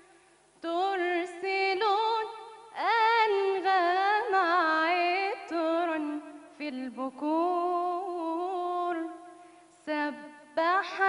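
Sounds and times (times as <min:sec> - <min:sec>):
woman singing unaccompanied: 0:00.0 - 0:11.0.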